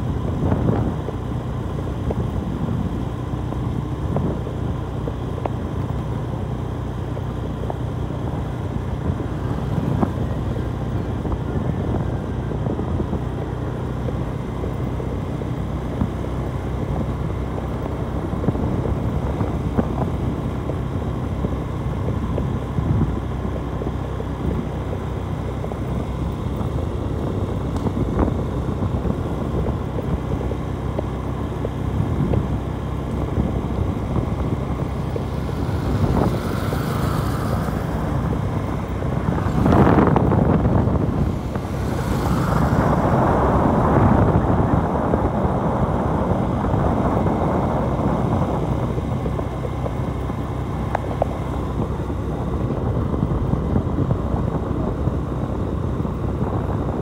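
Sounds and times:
motorcycle cruising: 0.0s - 57.0s
road hum: 0.0s - 57.0s
wind buffeting microphone: 0.0s - 57.0s
loud rushing swell: 33.8s - 45.3s.

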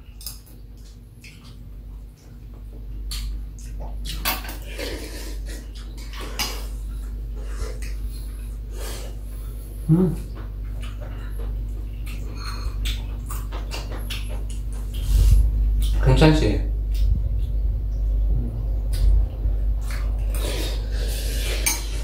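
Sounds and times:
mouth sounds eating soup: 9.8s - 11.2s.

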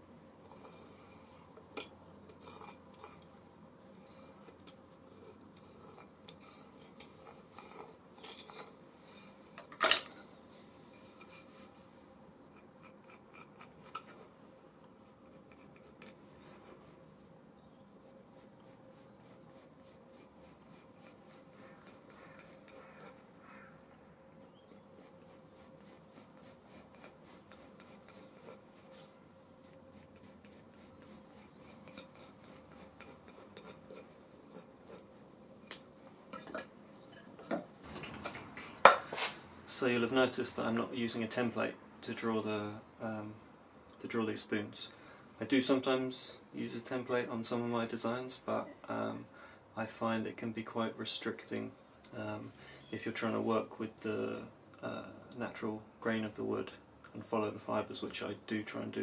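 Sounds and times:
compasses scratching wood: 0.4s - 3.3s, 3.9s - 9.4s, 15.0s - 17.0s, 17.7s - 23.7s, 24.3s - 35.8s
pencil scratching on wood: 0.5s - 1.6s, 2.4s - 3.3s, 4.0s - 8.8s, 12.5s - 14.3s, 15.0s - 17.0s, 18.0s - 23.7s, 24.4s - 35.2s.

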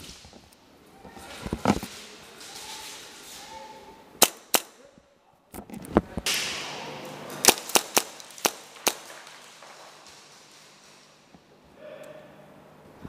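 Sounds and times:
airsoft pistol shots: 4.2s - 4.8s, 7.4s - 10.0s.

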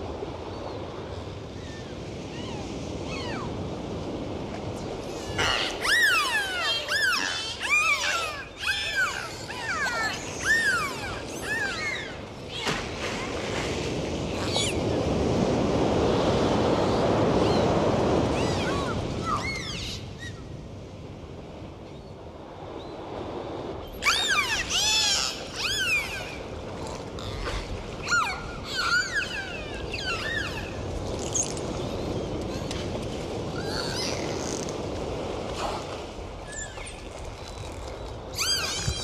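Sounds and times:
rushing water: 1.0s - 20.4s, 23.8s - 39.0s
dolphins whistling: 5.2s - 12.2s, 24.0s - 26.5s, 27.2s - 31.6s, 38.4s - 39.0s.

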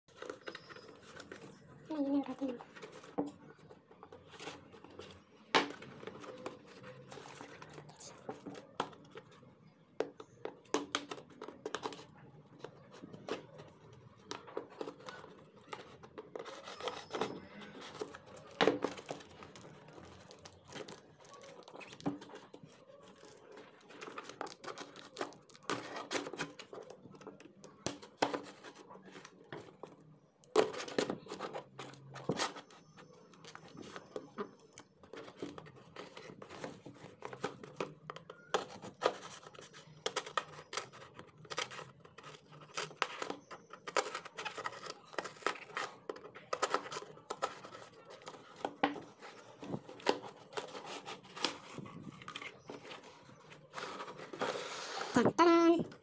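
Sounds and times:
cardboard rubbing: 12.8s - 27.4s, 30.6s - 56.0s
tape tearing: 38.6s - 55.3s.

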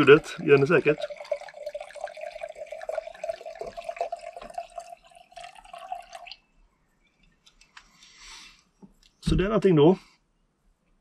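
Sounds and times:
wine pouring into glass: 0.0s - 6.4s.

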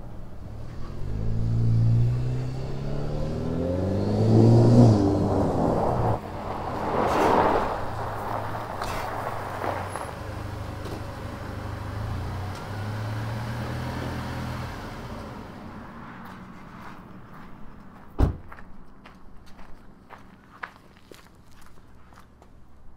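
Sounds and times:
sharp thump: 18.2s - 18.5s.

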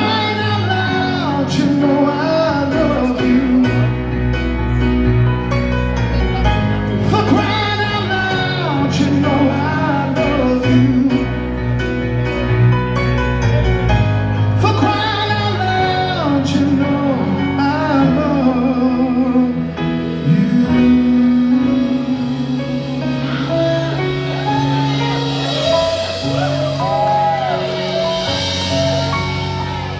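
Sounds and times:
man singing with vibrato: 0.0s - 4.3s, 6.4s - 11.8s, 14.5s - 24.3s
rock band playing ballad: 0.0s - 29.9s.

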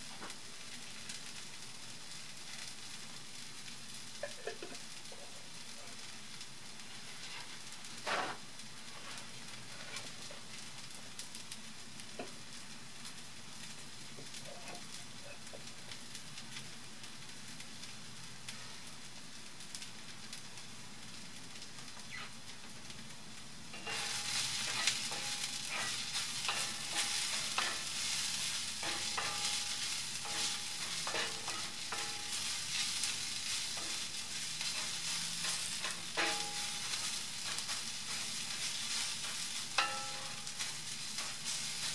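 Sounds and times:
onions sizzling in a pan: 0.0s - 41.9s
spatula scraping a pan: 6.8s - 10.4s, 23.8s - 41.9s.

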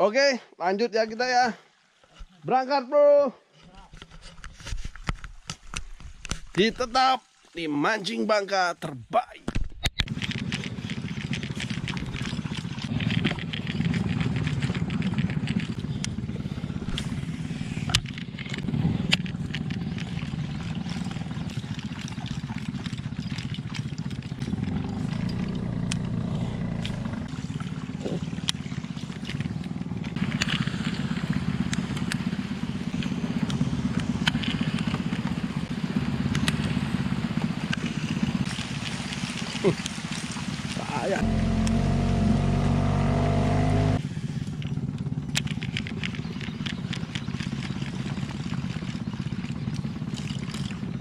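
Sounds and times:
boat engine running: 10.0s - 51.0s
rain falling on water: 34.5s - 44.0s.

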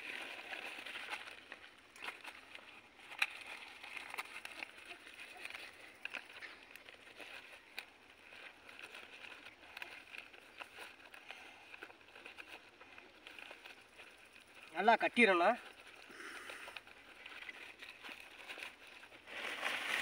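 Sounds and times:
leaves crinkling and rustling: 0.0s - 20.0s.

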